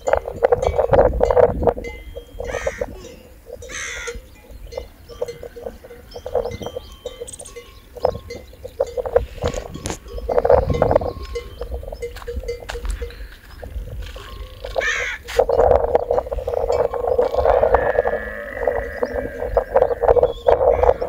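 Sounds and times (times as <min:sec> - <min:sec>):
livestock bells clanking: 0:00.0 - 0:21.0
short animal calls: 0:16.4 - 0:21.0.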